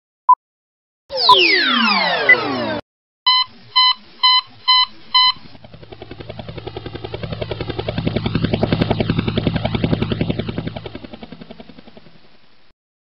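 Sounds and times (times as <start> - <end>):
drone propellers buzzing: 1.1 - 12.4
short warning beeps: 3.3 - 5.4.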